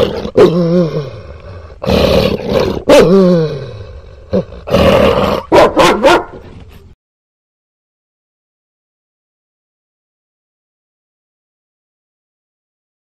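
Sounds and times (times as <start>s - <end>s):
dog barking and growling: 0.0s - 6.6s.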